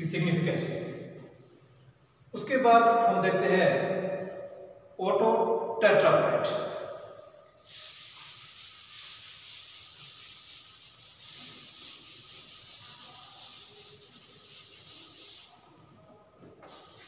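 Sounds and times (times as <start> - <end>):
duster rubbing on blackboard: 7.6 - 15.9.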